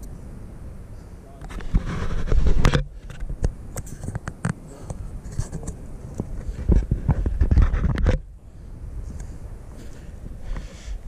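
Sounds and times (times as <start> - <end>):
clothing rubbing against camera: 1.5 - 8.2.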